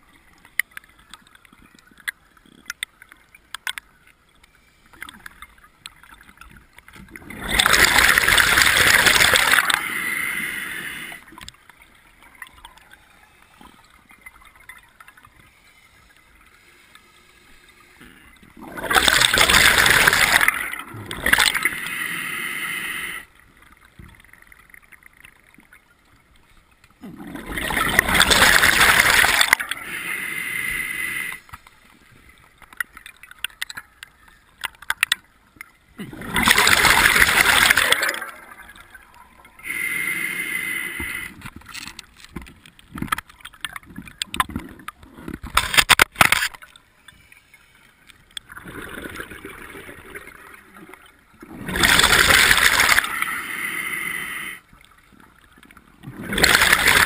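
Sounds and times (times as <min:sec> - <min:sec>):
small clicks: 0:00.3 - 0:07.2, 0:32.4 - 0:35.8, 0:41.3 - 0:48.5
diver breathing through regulator: 0:39.6 - 0:41.4, 0:53.0 - 0:54.7.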